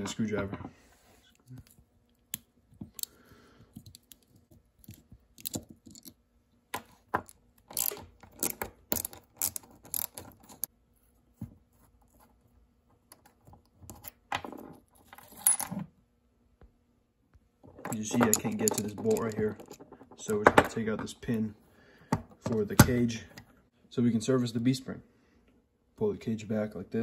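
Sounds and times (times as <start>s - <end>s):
small metal parts clinking: 3.8s - 6.2s, 7.1s - 10.7s, 17.7s - 20.7s.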